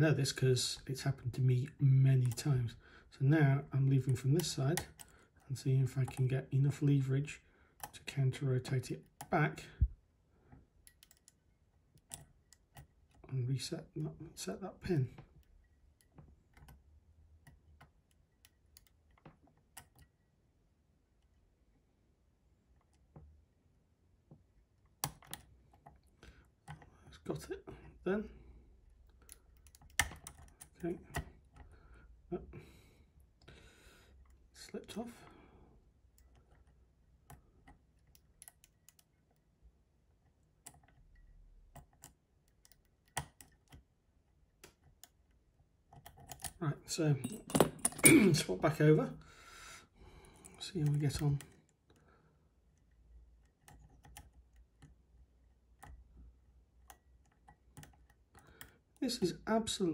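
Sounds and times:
faint metallic lock picking clicks: 0:10.8 - 0:13.2, 0:17.4 - 0:20.2, 0:24.8 - 0:26.9, 0:28.9 - 0:31.8, 0:36.1 - 0:39.4, 0:40.3 - 0:43.9, 0:45.9 - 0:46.6, 0:52.7 - 0:56.0, 0:56.8 - 0:58.9.

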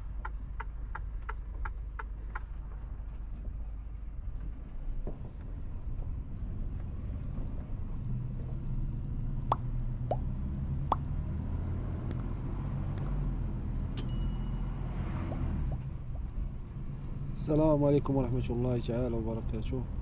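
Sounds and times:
truck engine droning: 0:00.0 - 0:20.0
sharp clicks: 0:12.0 - 0:13.2
bell-like ding: 0:14.0 - 0:14.9.

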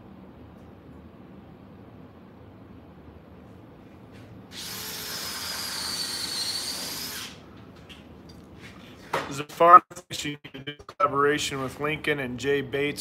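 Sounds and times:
router high whine: 0:04.5 - 0:07.4.

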